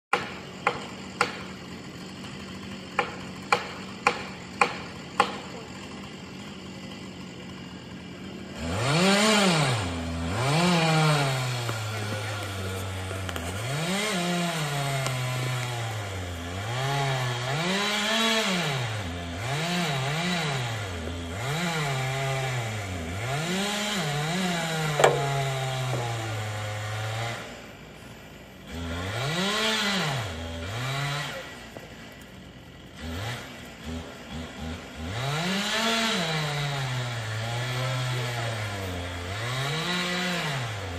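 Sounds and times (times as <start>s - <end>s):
chainsaw engine revving: 0.1s - 40.9s
sharp knock: 25.0s - 25.3s.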